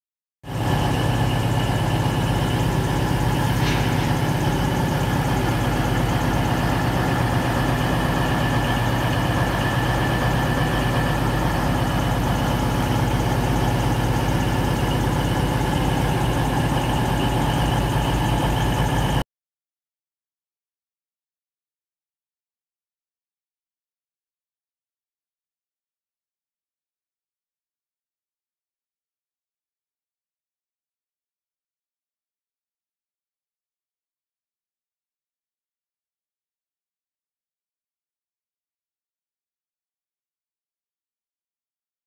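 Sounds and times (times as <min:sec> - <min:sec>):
diesel train engine idling: 0:00.5 - 0:19.2
faint high squeal: 0:00.6 - 0:19.2.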